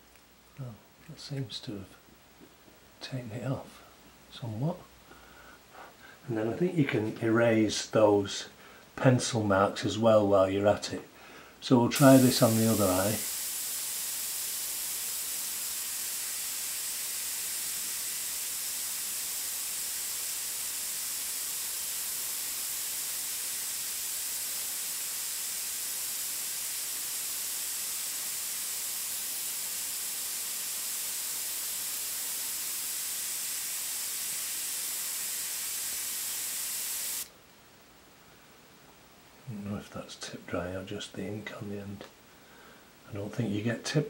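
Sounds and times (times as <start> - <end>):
airbrush hissing: 11.6 - 37.3.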